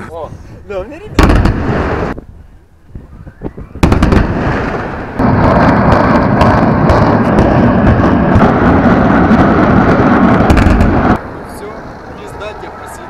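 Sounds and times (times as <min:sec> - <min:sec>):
explosive blasts: 0:01.1 - 0:02.2, 0:02.9 - 0:11.4
heavy rumble: 0:01.2 - 0:11.8.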